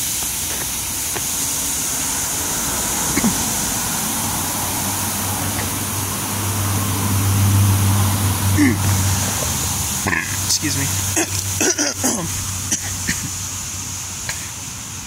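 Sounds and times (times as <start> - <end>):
high-pressure water spray hiss: 0.0 - 15.0
low motor hum: 1.6 - 11.6.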